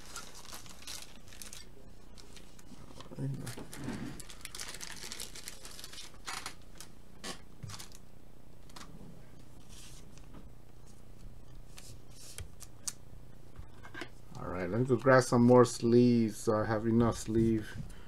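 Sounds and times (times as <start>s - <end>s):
plastic sleeve rustling: 0.0s - 6.9s, 7.6s - 8.0s
faint steady hum: 0.0s - 18.0s.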